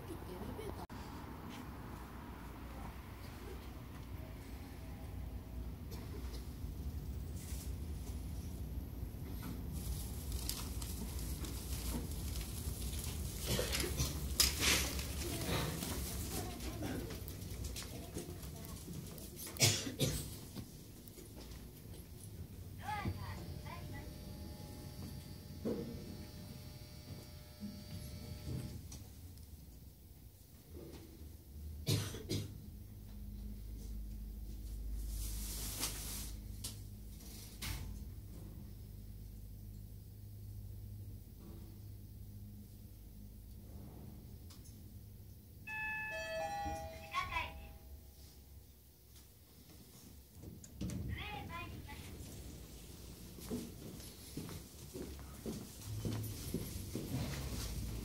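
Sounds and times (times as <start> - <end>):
bicycles rattling: 9.7 - 19.4
elevator doors opening: 45.7 - 47.0.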